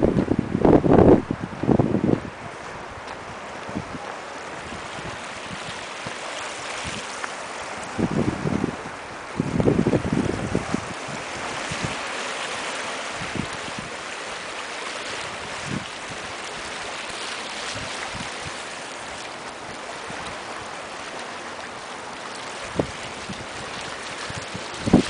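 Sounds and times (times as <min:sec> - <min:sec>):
wind bumps on microphone: 0:00.0 - 0:12.1, 0:13.1 - 0:13.9, 0:15.3 - 0:16.3, 0:17.7 - 0:18.6, 0:22.7 - 0:25.0
waves splashing against rocks: 0:00.0 - 0:25.0.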